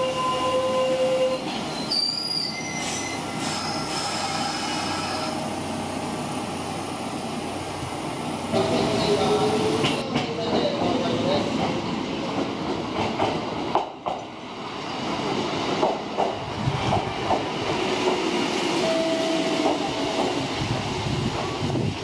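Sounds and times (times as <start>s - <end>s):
high wheel squeals: 0.0s - 5.4s
electric train wheels rumbling: 1.4s - 22.0s.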